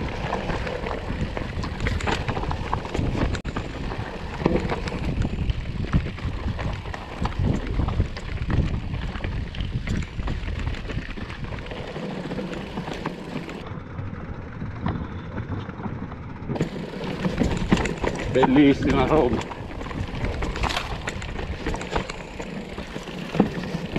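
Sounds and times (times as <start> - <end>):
tyres crunching over stones: 0.0 - 13.7, 16.6 - 23.9
bike rattling and knocking: 0.0 - 23.9
wind rumble on microphone: 0.0 - 23.9.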